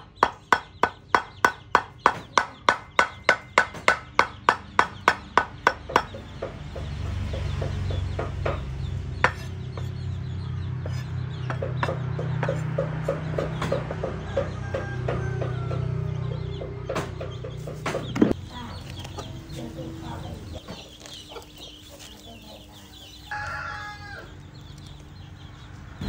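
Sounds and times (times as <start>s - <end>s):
cleaver chopping on wooden board: 8.2s - 10.0s.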